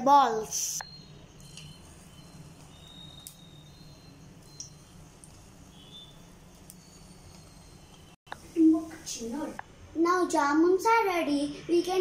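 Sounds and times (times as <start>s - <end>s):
low steady hum: 0.8s - 10.0s.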